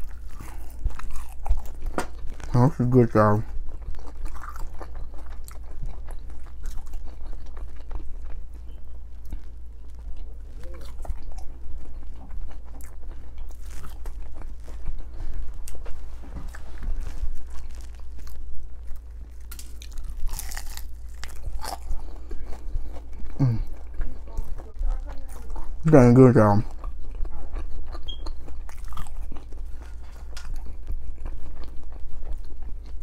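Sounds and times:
chewing and crunching food: 0.0s - 33.0s.

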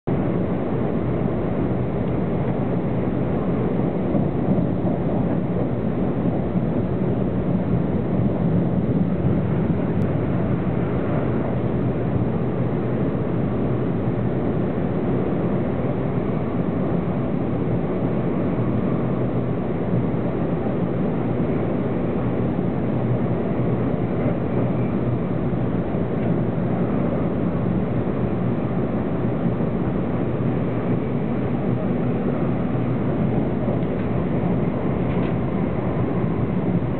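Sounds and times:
faint hum: 0.1s - 36.9s
train wheels rumbling on rail: 21.5s - 36.9s.

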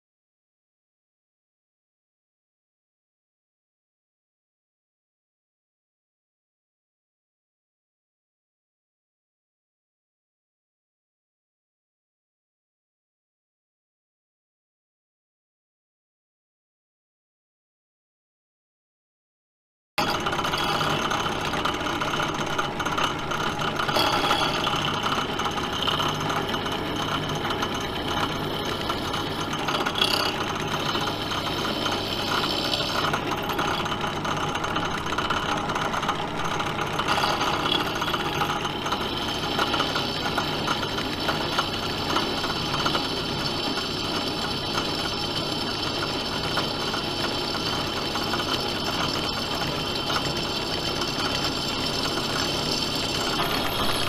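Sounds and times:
drill bit cutting steel: 20.0s - 54.0s
drill press motor humming: 20.0s - 54.0s.

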